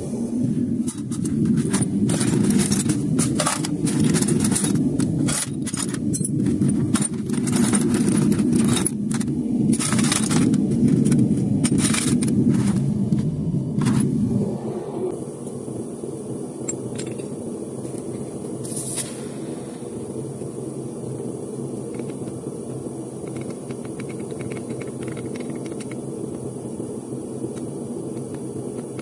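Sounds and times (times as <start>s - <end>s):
furnace burner roaring: 0.0s - 29.0s
metal clinking and scraping: 0.8s - 14.2s, 16.6s - 19.3s.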